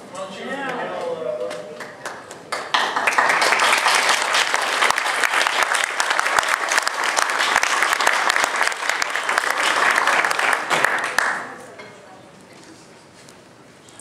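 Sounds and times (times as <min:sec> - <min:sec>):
people applauding: 0:00.7 - 0:11.7.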